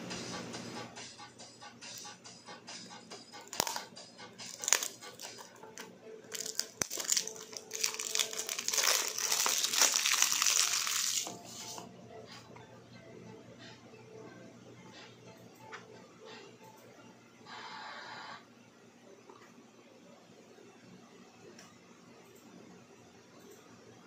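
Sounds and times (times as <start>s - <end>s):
cellophane crinkling: 3.5s - 3.8s, 4.5s - 11.4s.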